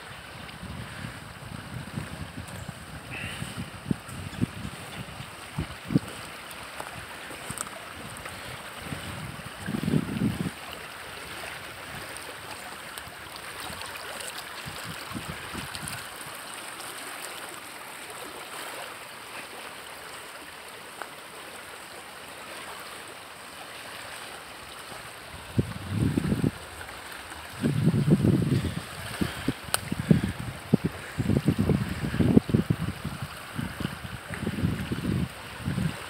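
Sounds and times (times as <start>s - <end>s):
flooded creek rushing: 0.0s - 36.0s
low rumbles on microphone: 27.5s - 35.9s.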